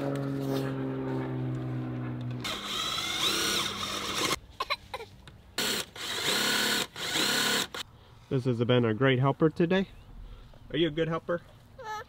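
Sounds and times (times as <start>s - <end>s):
cordless drill driving screws: 2.4s - 4.4s, 5.6s - 7.8s.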